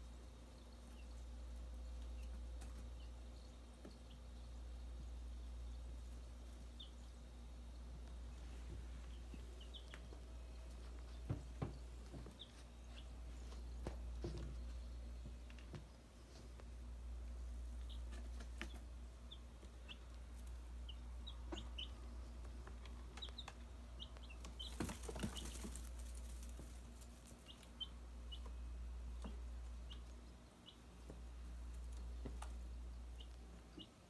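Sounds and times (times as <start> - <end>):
chicks peeping: 0.0 - 34.0
low steady hum: 0.0 - 34.0.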